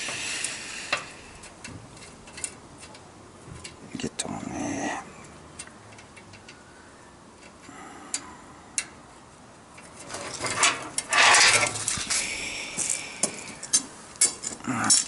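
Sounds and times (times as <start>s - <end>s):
metal clattering and scraping: 9.8s - 12.3s.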